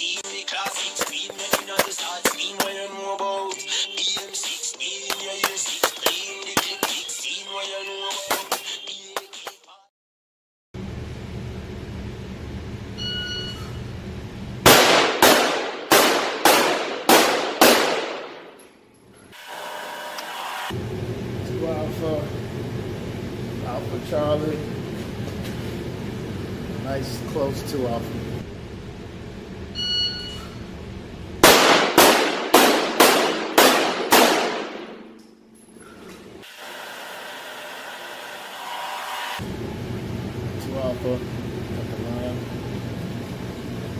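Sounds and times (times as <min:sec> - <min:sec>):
short beep: 0:13.0 - 0:13.8, 0:29.8 - 0:30.6
pistol shots echoing indoors: 0:14.7 - 0:18.6, 0:31.4 - 0:35.3.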